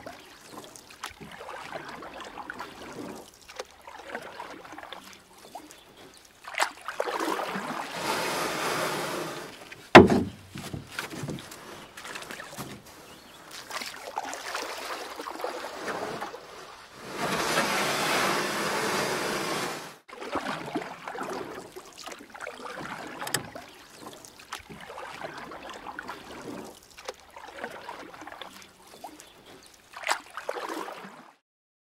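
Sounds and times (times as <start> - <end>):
water and wind hiss: 0.0 - 20.1
sharp knock: 10.0 - 10.4.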